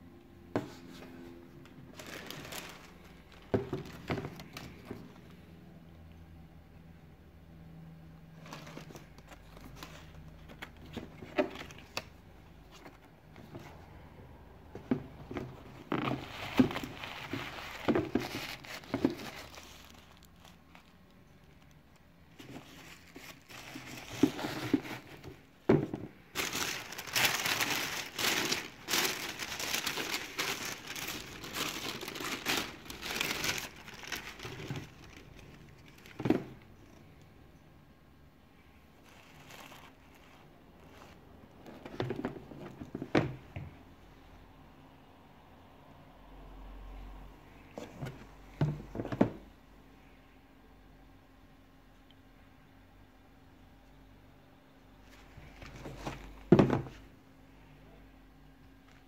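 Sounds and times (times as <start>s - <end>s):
wrapping paper rustling: 1.8s - 5.0s, 15.8s - 25.3s, 26.3s - 36.4s, 39.0s - 41.2s.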